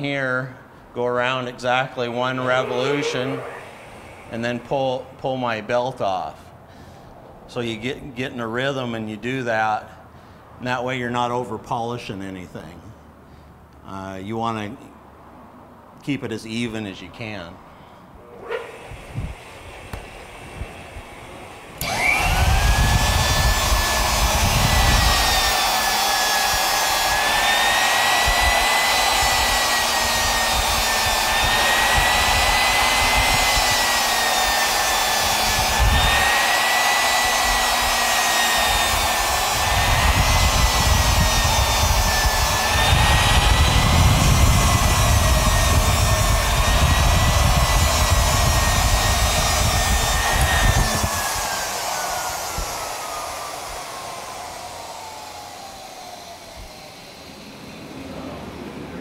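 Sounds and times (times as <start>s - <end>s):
belt polisher whining: 1.2s - 6.2s, 18.2s - 59.0s.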